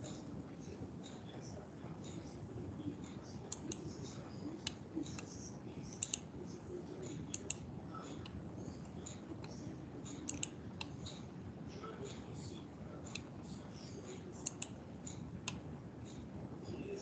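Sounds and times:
low background noise: 0:00.0 - 0:17.0
mouse and keyboard clicks: 0:03.5 - 0:04.0, 0:04.6 - 0:06.3, 0:07.1 - 0:07.6, 0:08.2 - 0:11.2, 0:14.4 - 0:15.6.

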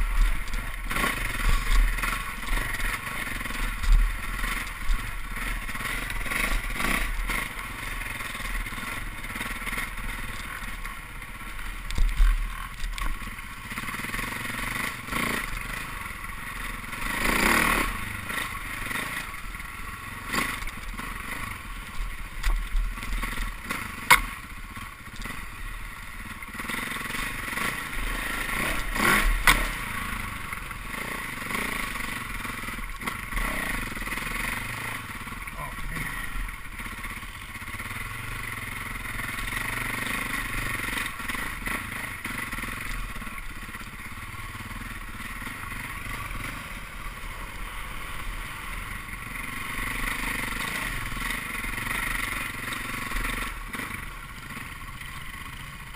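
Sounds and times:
dirt bike engine revving: 0:00.0 - 0:55.9
bike clattering over bumps: 0:27.3 - 0:30.0.

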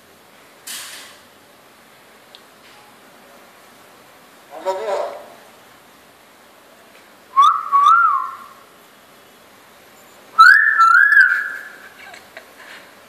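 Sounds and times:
myna bird whistles: 0:07.3 - 0:08.6, 0:10.4 - 0:11.8.

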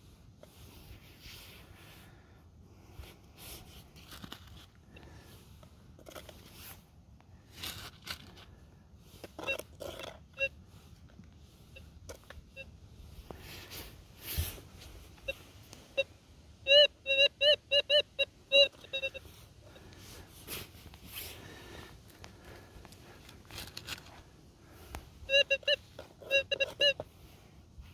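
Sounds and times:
metal detector beeps: 0:09.1 - 0:10.9, 0:11.5 - 0:14.4, 0:15.1 - 0:20.0, 0:22.4 - 0:27.3.

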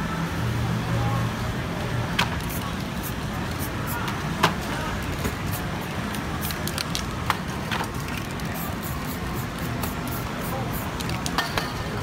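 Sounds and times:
street traffic rumble: 0:00.0 - 0:12.0
spray paint hissing bursts: 0:02.2 - 0:04.3, 0:05.1 - 0:07.1, 0:07.9 - 0:11.2.

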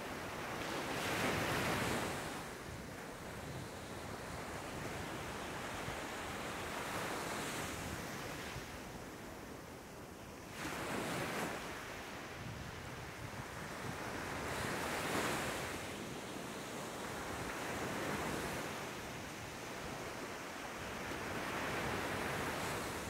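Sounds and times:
surf waves breaking on beach: 0:09.8 - 0:23.0.

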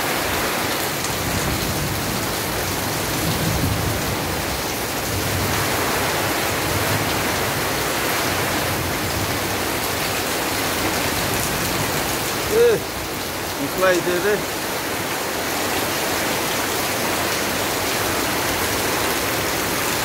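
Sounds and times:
heavy rain on trees and ground: 0:00.0 - 0:20.0.

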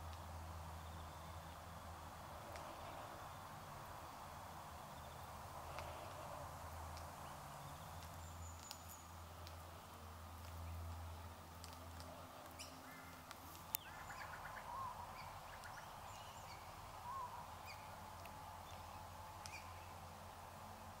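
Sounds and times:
background hiss: 0:00.0 - 0:21.0
birds cracking cones: 0:00.1 - 0:21.0
bird twittering: 0:13.8 - 0:18.0.

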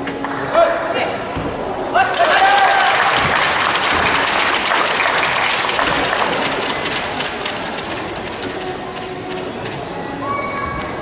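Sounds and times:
crowd clapping and cheering: 0:02.0 - 0:09.5.

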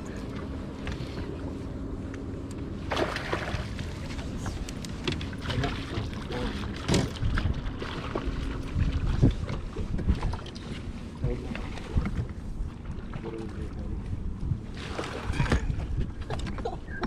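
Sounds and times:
water lapping against boat hull: 0:00.0 - 0:02.2, 0:02.8 - 0:17.0
wind: 0:00.0 - 0:17.0
knocks and rattles on deck: 0:06.8 - 0:07.5.

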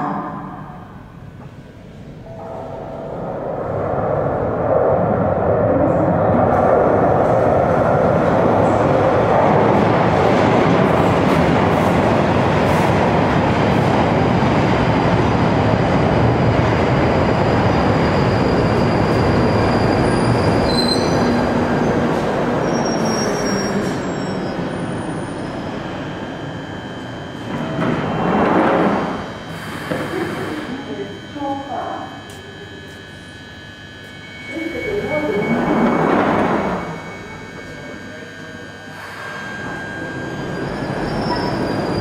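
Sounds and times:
train braking to a stop: 0:05.9 - 0:42.0
high brake and wheel squeals: 0:19.7 - 0:21.5, 0:22.6 - 0:25.3, 0:39.2 - 0:42.0.

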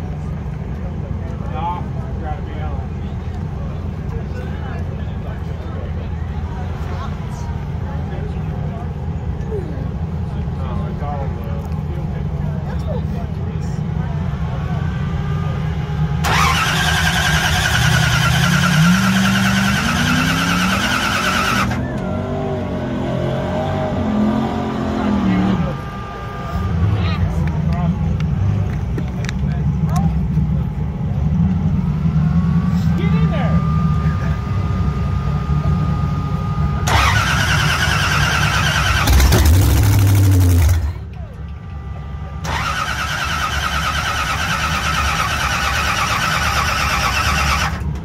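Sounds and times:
car engine starting: 0:00.0 - 0:48.0
starter motor cranking engine: 0:16.2 - 0:21.8, 0:36.8 - 0:41.0, 0:42.4 - 0:48.0.

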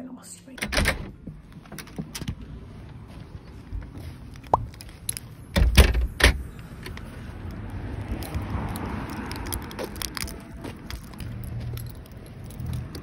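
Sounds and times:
keys jangling: 0:07.5 - 0:13.0.

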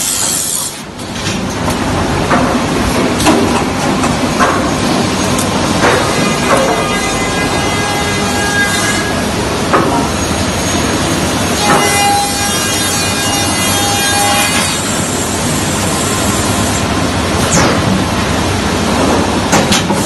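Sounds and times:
woodworking machinery clatter: 0:00.0 - 0:07.2
steady machine whine: 0:14.6 - 0:19.6.

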